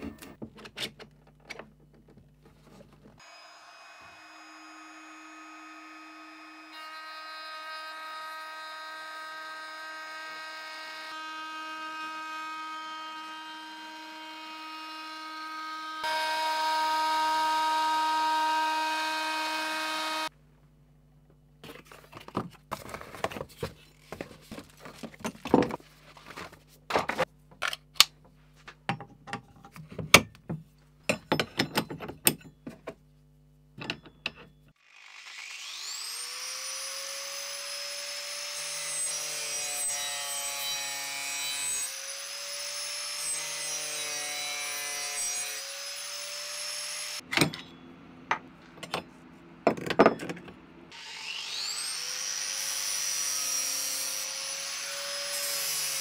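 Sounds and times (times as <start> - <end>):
angle grinder grinding wood: 3.2 - 20.3, 34.8 - 47.2.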